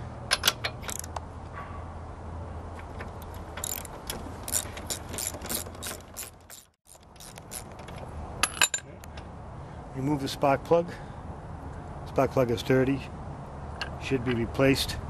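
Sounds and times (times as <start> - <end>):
ratchet wrench clicking: 3.2 - 8.7.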